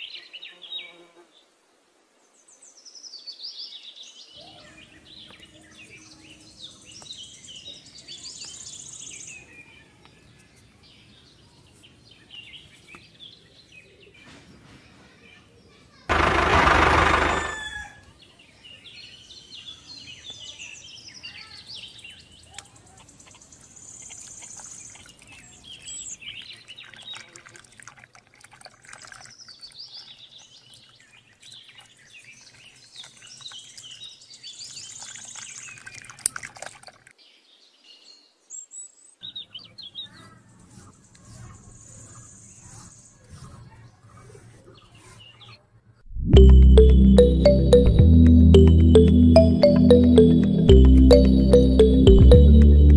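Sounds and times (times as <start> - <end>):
small birds chirping: 18.5 - 27.4, 29.0 - 36.5, 37.2 - 45.7.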